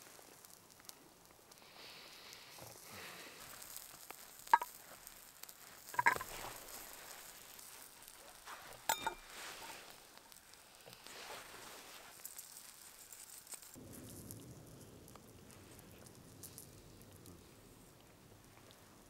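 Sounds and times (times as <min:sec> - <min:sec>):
eggshell taps and cracks: 0:04.4 - 0:04.8
knife clinking on steel bowl: 0:06.0 - 0:06.3, 0:08.9 - 0:09.7.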